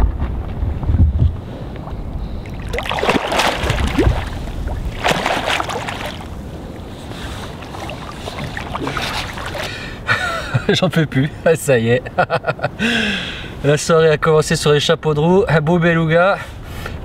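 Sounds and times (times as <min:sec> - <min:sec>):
wind rumbling on microphone: 0:00.0 - 0:10.1
fish splashing and thrashing: 0:02.3 - 0:10.1
water sloshing: 0:02.4 - 0:10.1.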